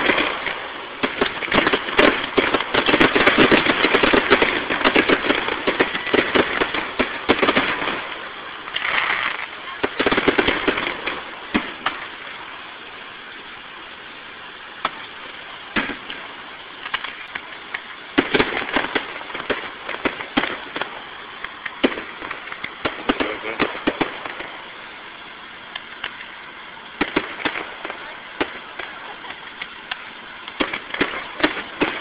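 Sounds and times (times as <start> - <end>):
firework shells bursting: 0.0 - 13.6, 14.7 - 32.0
firework crackle: 0.0 - 32.0.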